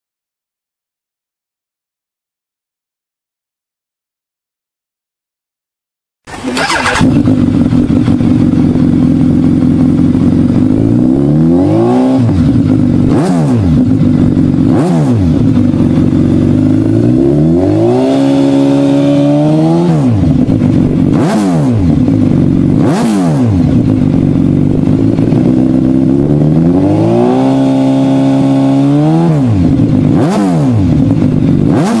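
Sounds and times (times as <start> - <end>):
exhaust crack: 6.3 - 11.0
motorcycle engine revving: 6.3 - 32.0.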